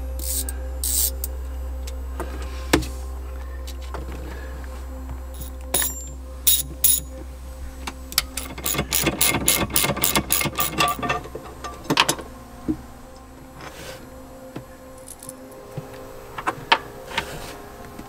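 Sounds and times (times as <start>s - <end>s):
socket ratchet clicking: 8.4s - 11.0s.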